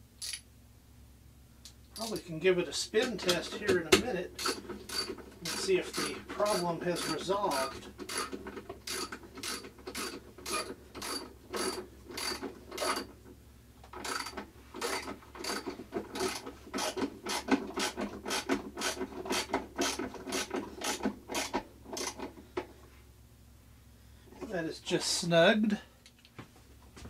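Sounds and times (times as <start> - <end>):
ratchet wrench clicking: 0.2 - 0.4, 4.4 - 8.3, 8.9 - 13.1.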